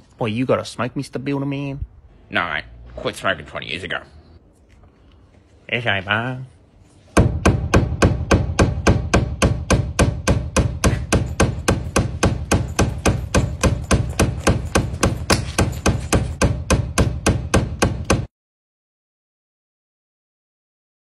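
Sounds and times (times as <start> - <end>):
rapid hammer strikes: 7.2 - 18.3.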